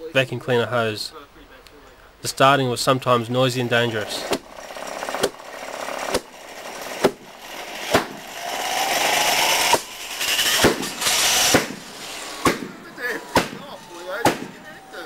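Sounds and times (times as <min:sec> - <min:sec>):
turbine whine spooling up: 0:03.9 - 0:15.0
jet engine bangs: 0:09.7 - 0:14.8.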